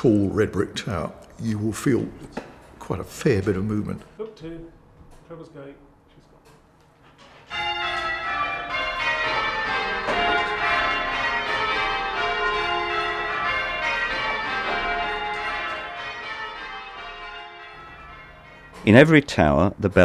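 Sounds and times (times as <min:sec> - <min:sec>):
church bells ringing: 0:07.5 - 0:20.0.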